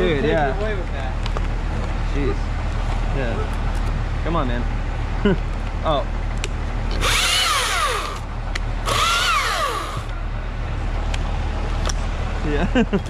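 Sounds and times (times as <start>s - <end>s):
chainsaw motor whine cutting: 6.9s - 10.1s.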